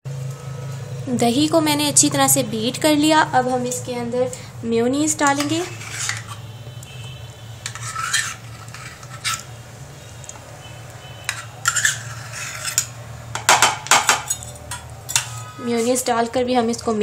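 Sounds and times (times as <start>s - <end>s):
metal spoon scraping a cup: 5.2s - 6.5s, 7.6s - 9.6s, 11.1s - 13.0s, 14.2s - 16.1s.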